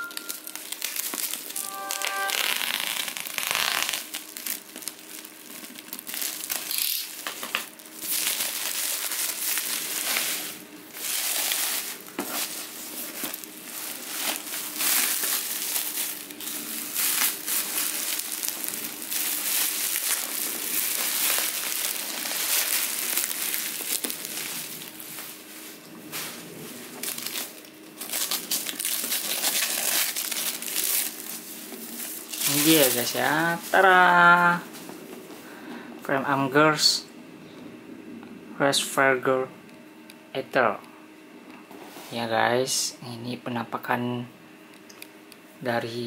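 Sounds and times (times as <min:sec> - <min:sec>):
bubble wrap crinkling: 0:00.0 - 0:34.9.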